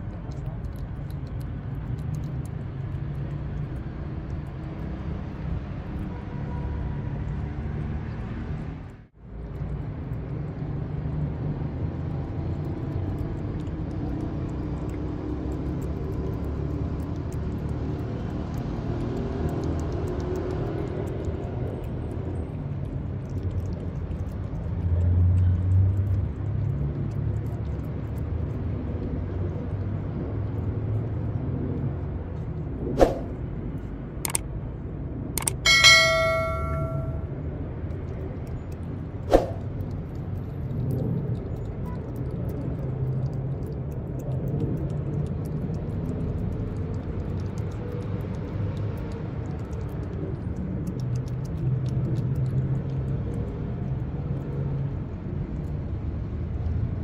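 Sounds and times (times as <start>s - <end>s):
street traffic rumble: 0.0s - 57.0s
sharp clicks: 34.2s - 34.4s, 35.4s - 35.6s
ringing bell chime: 35.7s - 37.2s.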